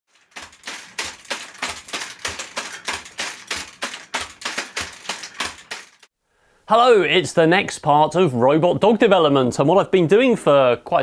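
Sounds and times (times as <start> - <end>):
robot legs stamping on carpet: 0.3 - 6.0.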